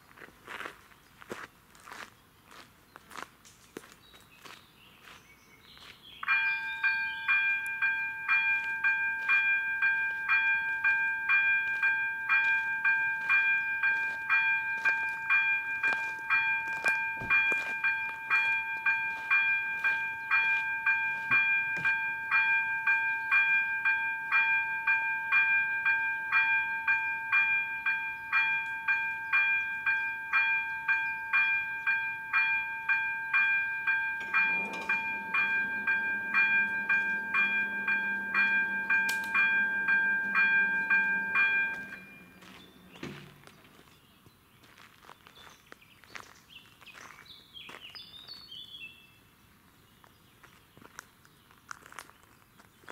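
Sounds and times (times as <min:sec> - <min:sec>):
level crossing bell ringing: 0:06.2 - 0:43.4
barrier drive humming: 0:31.8 - 0:43.8.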